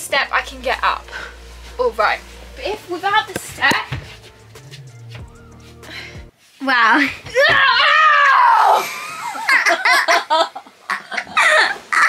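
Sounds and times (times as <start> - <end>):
girl screaming: 7.3 - 8.9.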